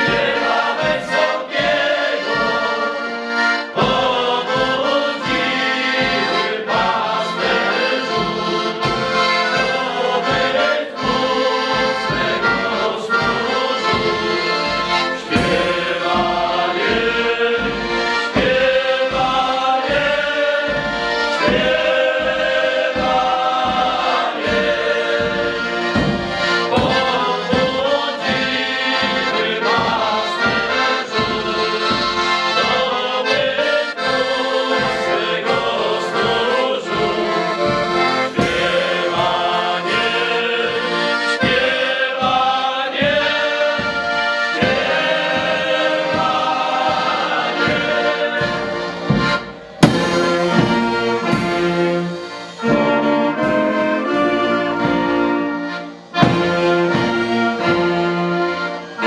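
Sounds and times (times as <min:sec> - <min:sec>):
accordion: 0:00.0 - 0:59.0
brass band playing: 0:00.0 - 0:59.0
men singing a carol: 0:00.0 - 0:59.0
bass drum with cymbal: 0:49.0 - 0:52.1.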